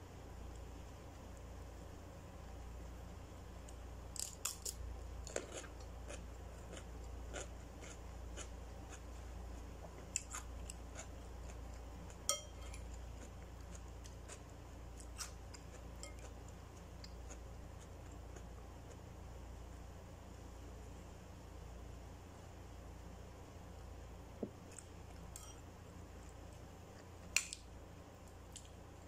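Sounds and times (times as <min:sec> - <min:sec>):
fork clicking on ceramic bowl: 0:12.3 - 0:12.8.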